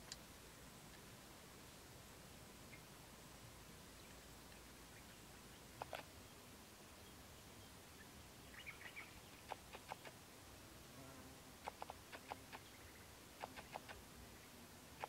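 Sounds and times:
faint sharp clicks: 0.0s - 0.3s, 5.8s - 6.1s, 9.4s - 10.2s, 11.6s - 12.7s, 13.4s - 14.0s.

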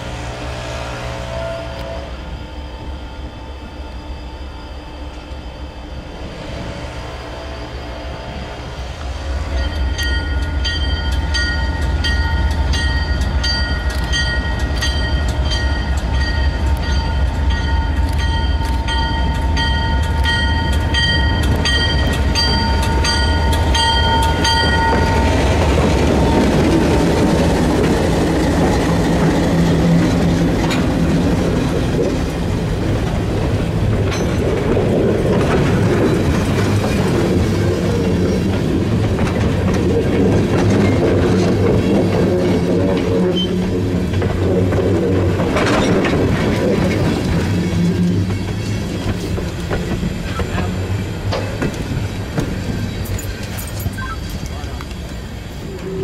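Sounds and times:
diesel locomotive engine rumble: 0.0s - 56.0s
train wheels rolling on rails: 0.0s - 56.0s
locomotive bell ringing: 9.3s - 31.1s, 52.9s - 56.0s.

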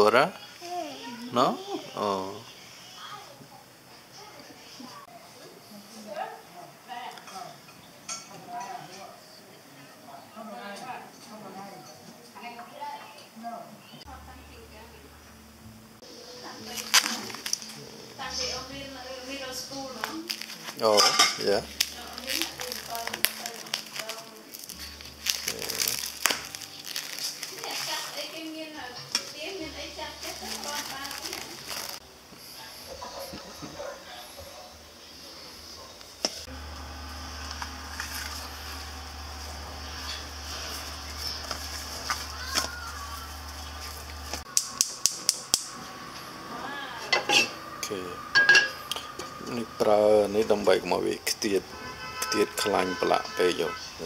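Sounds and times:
cling film crinkling: 16.6s - 18.0s, 19.9s - 28.6s, 29.3s - 32.0s, 36.6s - 45.8s
steak rubbed in steel bowl: 37.9s - 42.4s.

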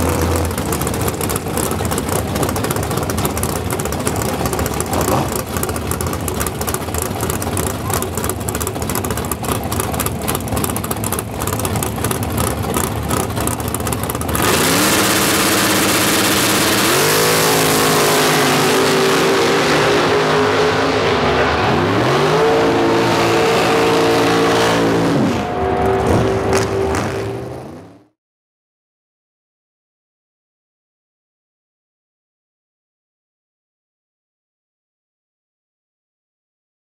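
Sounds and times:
tyres spinning: 0.0s - 14.9s
engine idling and revving: 0.0s - 28.2s.

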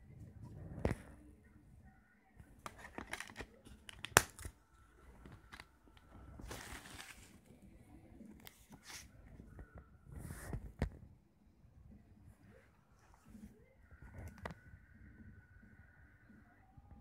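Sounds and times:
card and plastic rustling: 2.6s - 7.6s.

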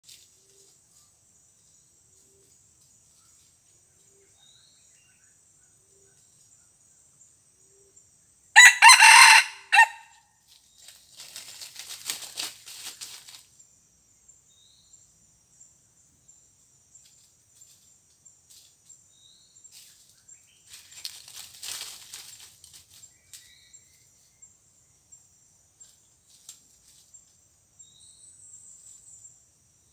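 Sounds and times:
rustle in dry leaves: 0.0s - 1.2s, 8.6s - 13.6s, 19.6s - 23.8s, 25.8s - 27.4s
high insect drone: 0.0s - 29.9s
rooster crowing: 8.6s - 10.2s.

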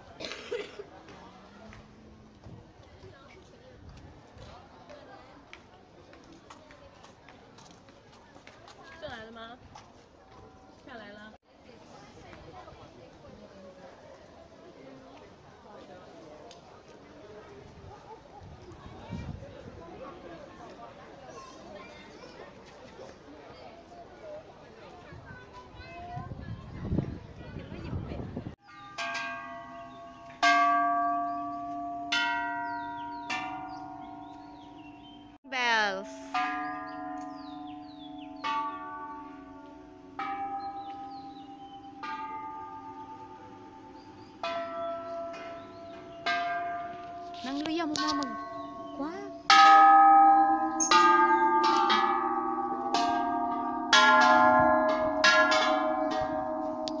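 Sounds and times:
metal temple bells struck: 28.6s - 57.0s.

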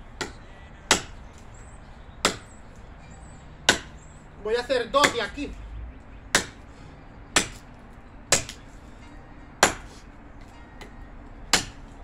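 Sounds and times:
machete chopping wood: 0.2s - 1.5s, 2.2s - 2.6s, 3.6s - 4.0s, 4.9s - 5.4s, 6.3s - 6.6s, 7.3s - 7.7s, 8.3s - 8.6s, 9.6s - 9.9s, 11.5s - 12.0s.

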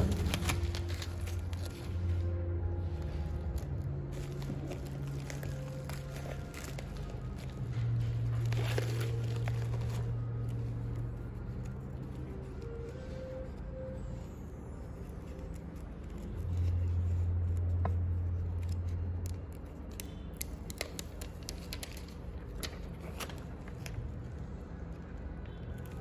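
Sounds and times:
low drone: 0.0s - 20.4s
paper label peeling and crackling: 0.0s - 26.0s
steady low hum: 0.0s - 26.0s.

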